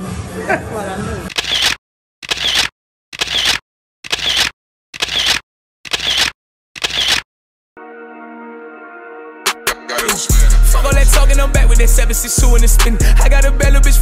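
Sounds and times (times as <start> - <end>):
camera shutter snaps: 1.3 - 7.2.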